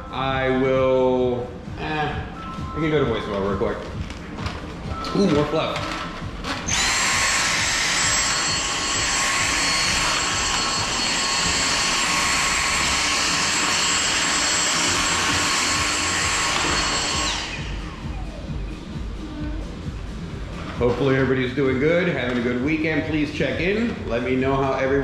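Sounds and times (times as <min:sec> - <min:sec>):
vacuum cleaner running: 0:05.8 - 0:20.0.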